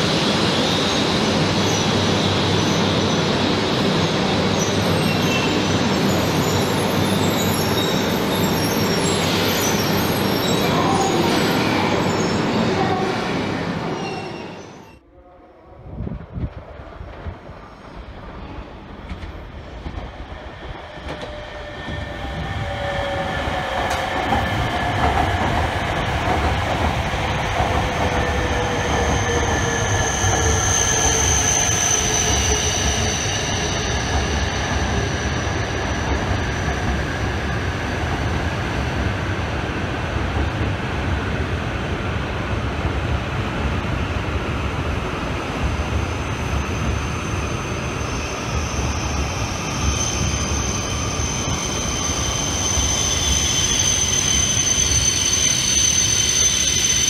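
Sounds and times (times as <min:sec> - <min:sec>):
train slowing into station: 0:00.0 - 0:57.0.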